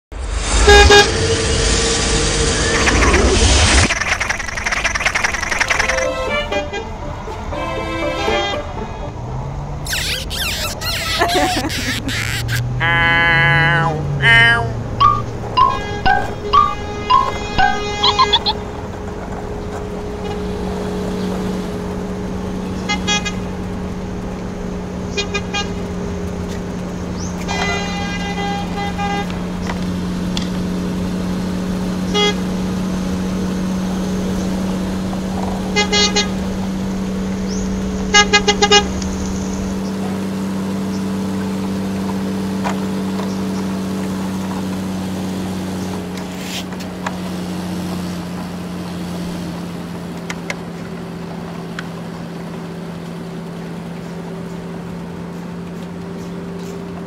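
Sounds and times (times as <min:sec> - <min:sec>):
low engine-like hum: 0:00.2 - 0:57.0
truck horn tooting: 0:00.5 - 0:01.4, 0:06.0 - 0:09.2, 0:09.9 - 0:19.0, 0:22.6 - 0:23.8, 0:25.0 - 0:26.1, 0:27.4 - 0:29.6, 0:32.0 - 0:33.3, 0:35.6 - 0:37.3, 0:37.9 - 0:39.2.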